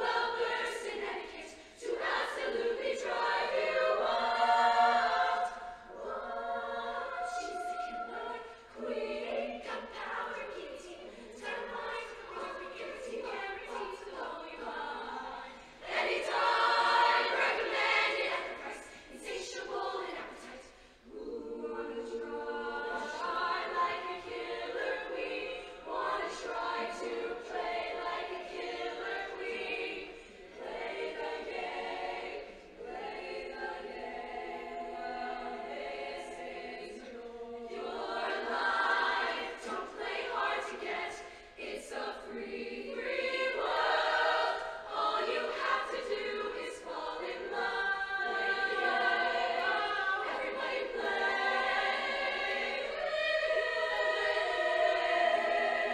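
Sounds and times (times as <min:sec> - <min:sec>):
choir singing in harmony: 0:00.0 - 0:55.9.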